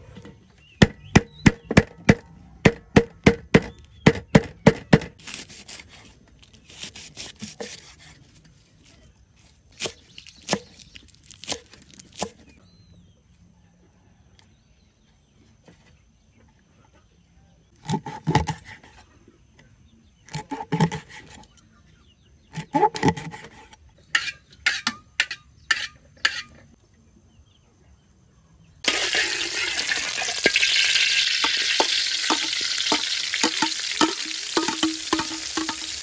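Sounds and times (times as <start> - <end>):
stone pestle pounding on wood: 0.8 - 5.1, 31.8 - 36.0.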